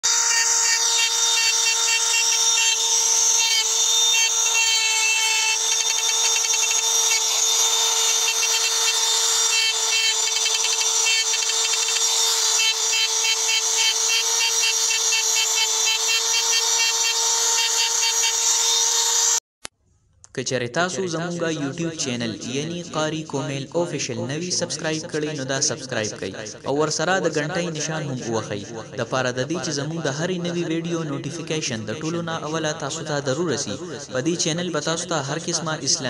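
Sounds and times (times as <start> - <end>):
rotary engraving tool whine: 0.0 - 19.4
bit scratching stone: 0.3 - 18.6.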